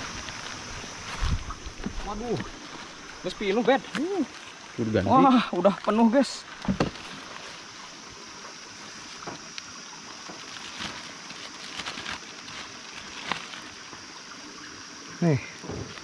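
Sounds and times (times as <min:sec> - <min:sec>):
water running: 0:00.0 - 0:16.0
sharp knocks or splashes: 0:06.6 - 0:07.2.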